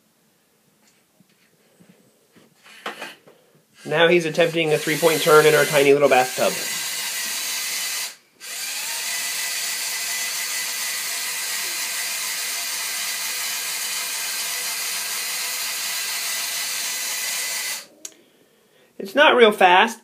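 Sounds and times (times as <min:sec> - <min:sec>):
toy motor whirring: 0:03.8 - 0:17.9.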